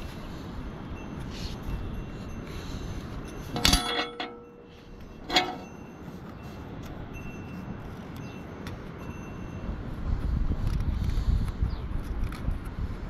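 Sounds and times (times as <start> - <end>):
low outdoor background noise: 0.0 - 13.0
metallic clinks of tools: 1.0 - 6.1.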